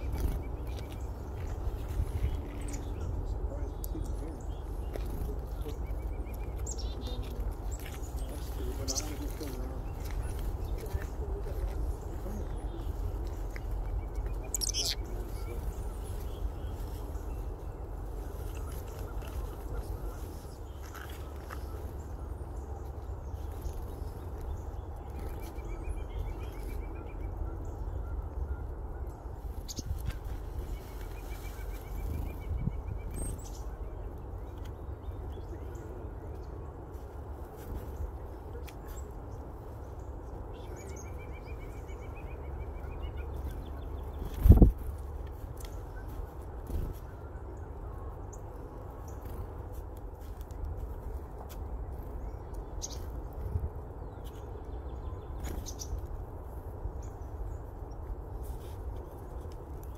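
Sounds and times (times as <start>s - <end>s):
wings fluttering: 0.0s - 3.2s, 4.0s - 25.8s, 43.2s - 47.3s
chickadees chipping: 0.0s - 59.9s
faint small bird notes: 12.4s - 17.5s
wind on microphone: 29.4s - 33.5s, 44.1s - 47.1s.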